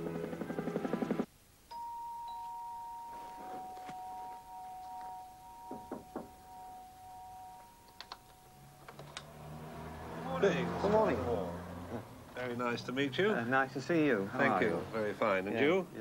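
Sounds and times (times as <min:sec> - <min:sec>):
two-tone doorbell chime: 0:01.7 - 0:08.9.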